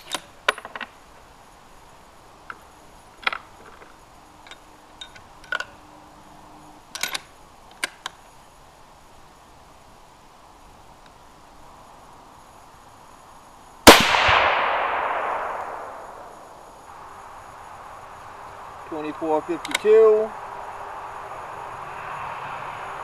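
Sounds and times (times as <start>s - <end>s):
rifle bolt metallic clicks: 6.9s - 8.2s.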